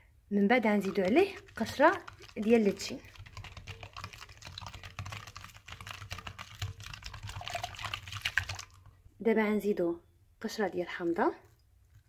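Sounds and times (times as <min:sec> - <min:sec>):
liquid splashing: 0:00.7 - 0:09.0.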